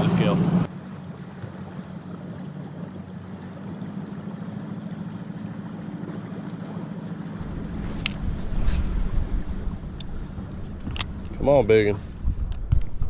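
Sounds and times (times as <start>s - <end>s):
boat motor humming: 0.0s - 13.0s
deep rumble: 7.4s - 13.0s.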